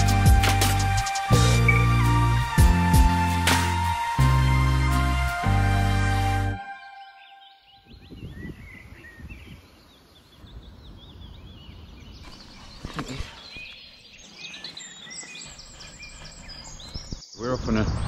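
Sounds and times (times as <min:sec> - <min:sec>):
small birds chirping: 0:06.8 - 0:18.0.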